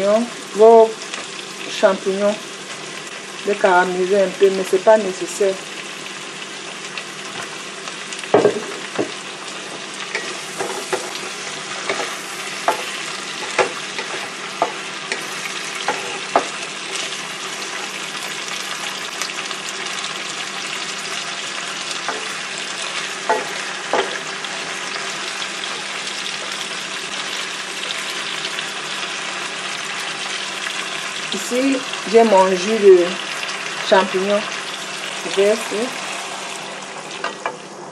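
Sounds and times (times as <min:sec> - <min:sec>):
food sizzling in oil: 0:00.0 - 0:37.9
wooden spatula knocking on pan: 0:08.3 - 0:09.2, 0:12.6 - 0:13.8, 0:15.9 - 0:16.6.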